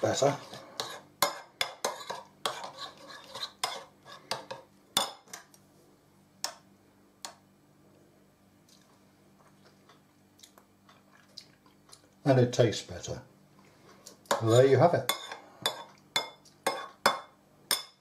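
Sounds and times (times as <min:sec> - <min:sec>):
spoon stirring in china bowl: 0:00.0 - 0:05.4, 0:14.0 - 0:17.8.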